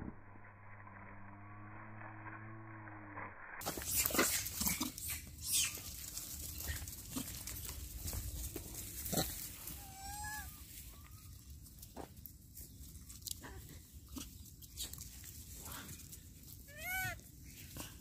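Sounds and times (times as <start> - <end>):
monkeys making short calls: 16.7 - 17.2.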